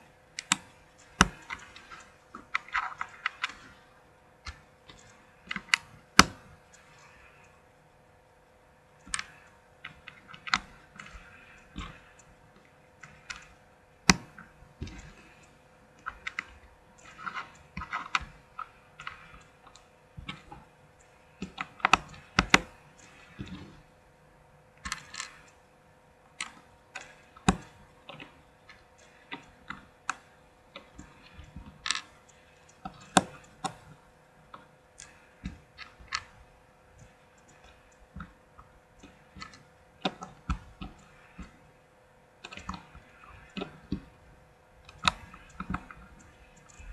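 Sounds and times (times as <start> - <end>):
faint steady hum: 0.0 - 46.9
plastic bricks clicking: 24.9 - 25.5.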